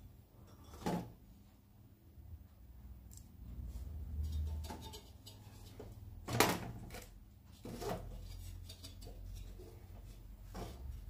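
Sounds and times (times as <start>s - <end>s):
metal panels knocking and scraping: 4.2s - 11.0s.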